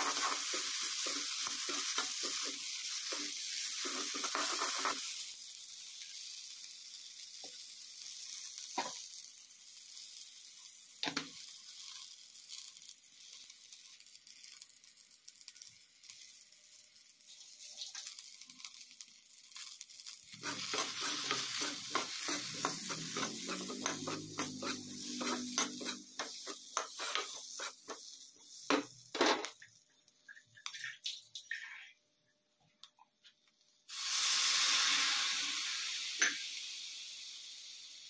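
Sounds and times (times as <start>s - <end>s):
spatula scraping pan: 0.0s - 5.1s, 20.3s - 29.6s
potatoes sizzling in oil: 0.0s - 31.4s, 33.7s - 38.0s.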